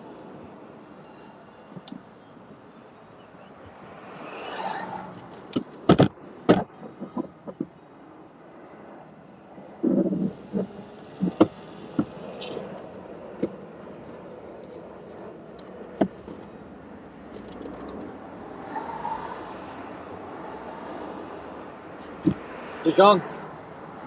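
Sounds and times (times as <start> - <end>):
steady background noise: 0.0 - 24.0
clicks and knocks in car cabin: 5.5 - 7.7, 11.2 - 12.2.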